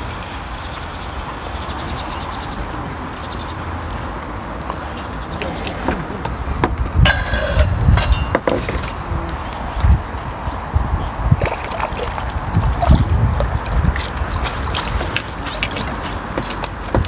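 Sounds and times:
fish splashing at surface: 11.4s - 13.1s, 13.9s - 16.9s.

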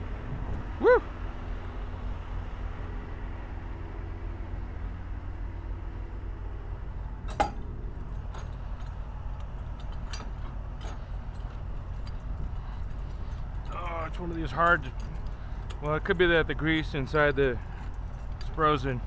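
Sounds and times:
steady low rumble: 0.0s - 19.0s
sharp metal clicks and clinks: 7.3s - 19.0s.

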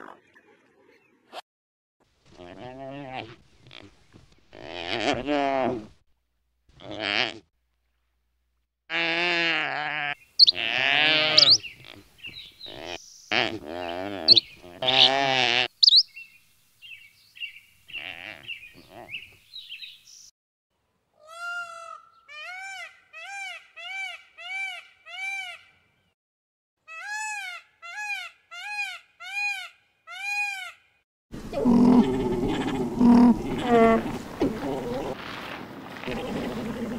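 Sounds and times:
animal bleat-like cries: 8.9s - 12.0s, 12.7s - 15.7s, 18.0s - 19.1s.

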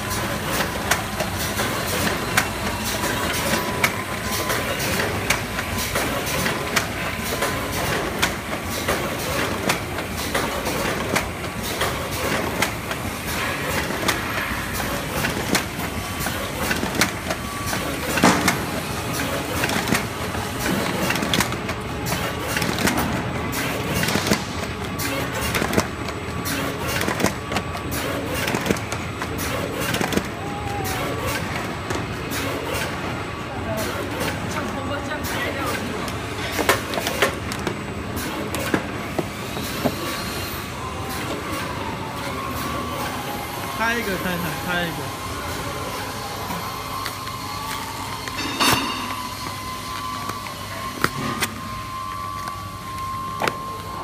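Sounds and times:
packing machine clattering: 0.0s - 40.2s.

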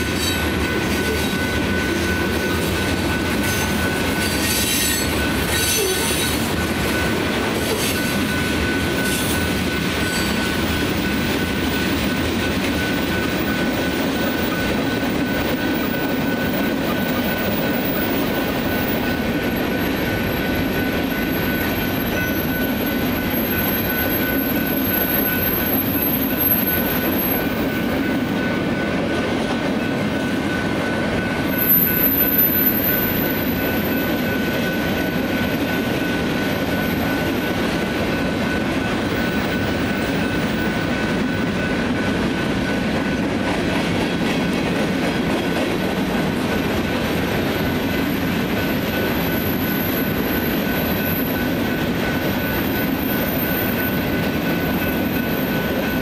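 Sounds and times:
crossing electronic bells ringing: 0.0s - 56.0s
freight cars rolling on rails: 0.0s - 56.0s
train clunks: 0.0s - 56.0s
high wheel squeal: 3.4s - 10.6s.

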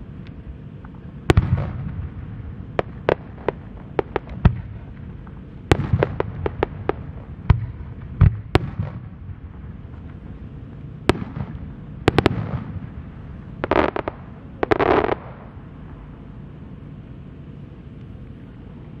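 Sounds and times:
low background rumble: 0.0s - 19.0s
rapid fireworks pops: 0.8s - 13.0s, 13.6s - 15.6s
fireworks bangs: 1.2s - 10.2s, 11.0s - 15.6s.

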